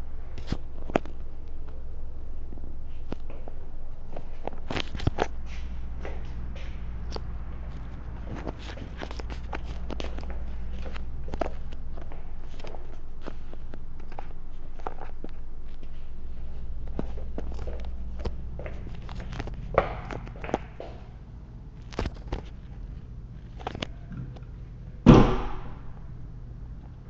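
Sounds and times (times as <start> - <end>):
loud thunk: 25.1 - 25.9.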